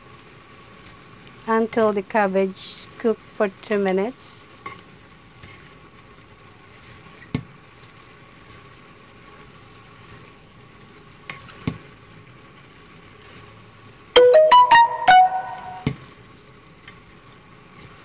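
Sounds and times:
food sizzling in a pan: 0:00.0 - 0:14.1, 0:16.0 - 0:18.0
music with plucked notes: 0:14.2 - 0:15.9.

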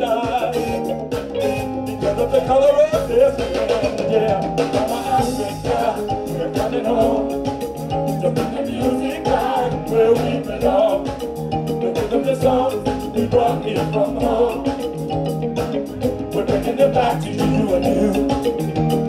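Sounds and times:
man singing into a microphone: 0:00.0 - 0:00.9, 0:02.0 - 0:07.5, 0:08.2 - 0:11.2, 0:11.8 - 0:14.8, 0:16.3 - 0:18.6
live band music: 0:00.0 - 0:19.0.

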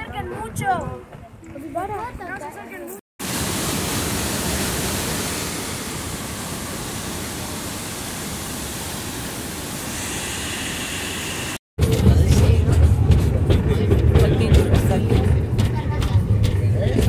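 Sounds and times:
waterfall rushing into pool: 0:03.2 - 0:11.6.

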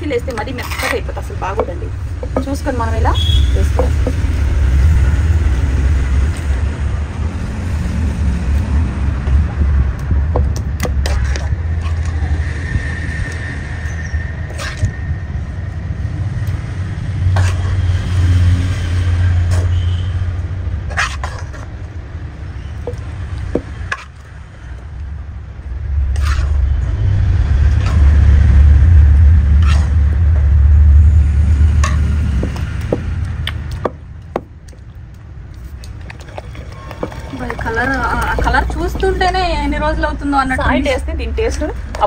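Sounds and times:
wood knocking on stone: 0:01.5 - 0:02.6, 0:03.6 - 0:04.2, 0:33.8 - 0:34.8
pestle pounding in mortar: 0:03.6 - 0:04.3, 0:33.8 - 0:34.6.

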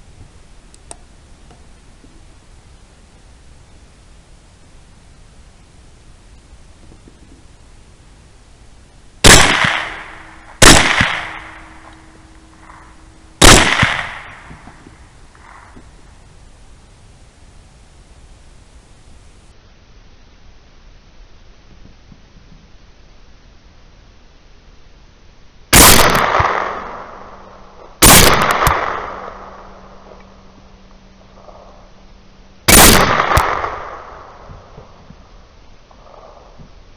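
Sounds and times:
rifle shots echoing: 0:09.2 - 0:15.9, 0:25.8 - 0:30.2, 0:32.7 - 0:35.0.

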